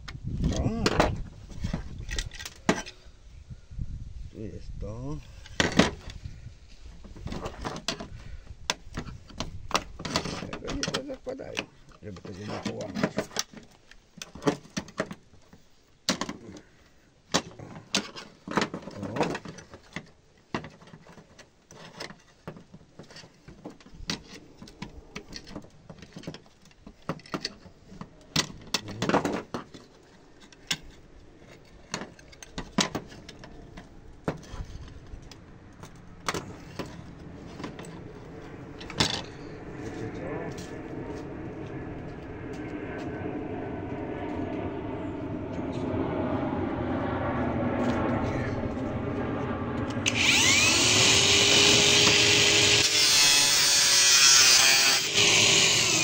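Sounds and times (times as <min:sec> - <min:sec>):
plastic parts clicking and rattling: 0:17.3 - 0:38.0
screwdriver prying and scraping: 0:17.3 - 0:38.0, 0:50.1 - 0:56.0.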